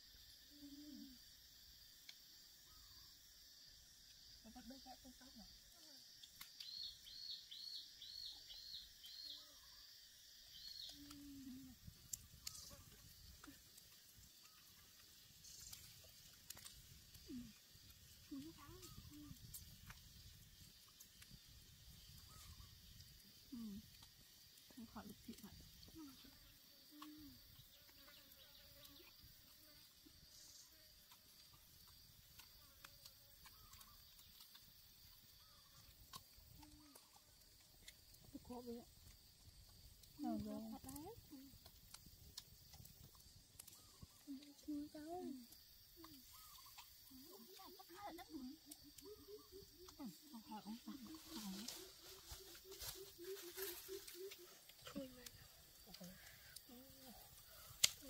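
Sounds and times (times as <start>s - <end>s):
high insect drone: 0.0s - 58.0s
small clicks: 23.8s - 38.4s.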